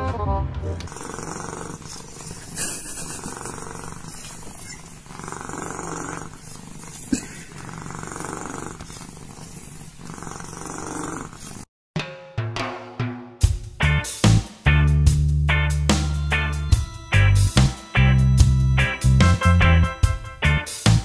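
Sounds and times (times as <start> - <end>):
cat purring: 0.9 - 11.7.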